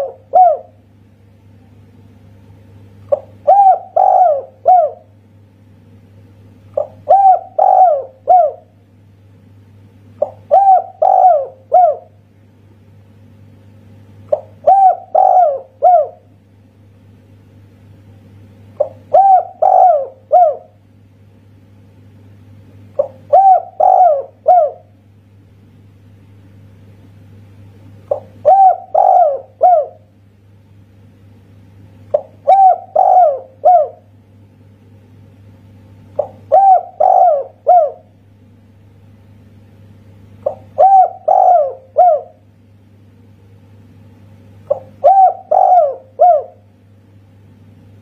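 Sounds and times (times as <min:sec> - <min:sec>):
dove cooing: 0:00.0 - 0:00.8, 0:03.1 - 0:05.2, 0:06.7 - 0:08.8, 0:10.2 - 0:12.2, 0:14.3 - 0:16.3, 0:18.8 - 0:20.8, 0:23.0 - 0:25.0, 0:28.1 - 0:30.1, 0:32.1 - 0:34.1, 0:36.1 - 0:38.2, 0:40.4 - 0:42.5, 0:44.7 - 0:46.7.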